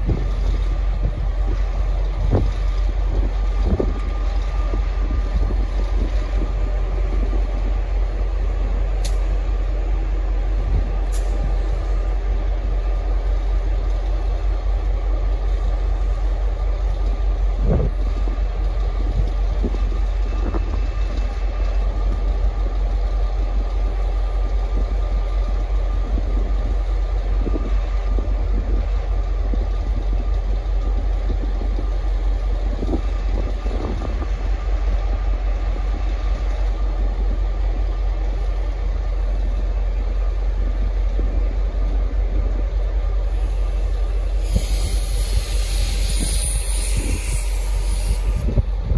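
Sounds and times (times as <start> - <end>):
diesel locomotive engine rumble: 0.0 - 48.9.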